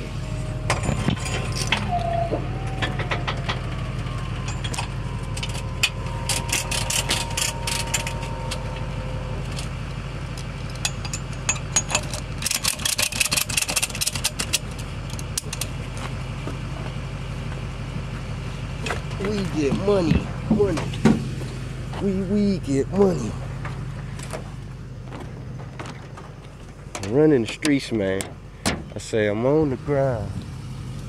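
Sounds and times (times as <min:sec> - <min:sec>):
vehicle engine idling: 0:00.0 - 0:31.0
metal clanking and rattling: 0:00.3 - 0:17.0, 0:23.0 - 0:29.3.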